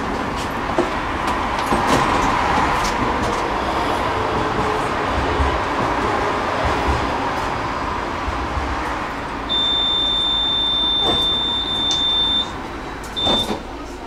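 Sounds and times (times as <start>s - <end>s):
tram running noise: 0.0s - 14.0s
high electronic beep: 9.5s - 12.6s, 13.2s - 13.6s.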